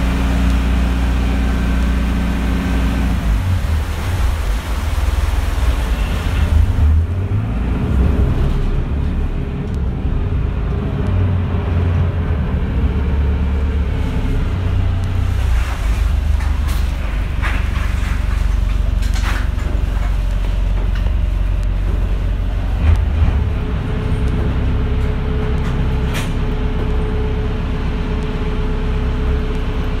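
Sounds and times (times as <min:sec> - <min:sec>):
ferry engine rumbling: 0:00.0 - 0:30.0
rushing wind and water: 0:00.0 - 0:30.0.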